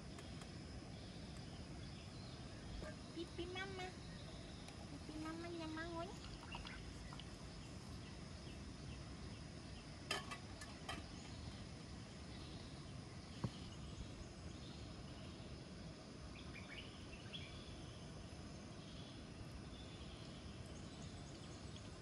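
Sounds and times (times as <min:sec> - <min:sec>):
birds chirping: 0:00.0 - 0:09.9
insects chirping: 0:00.0 - 0:22.0.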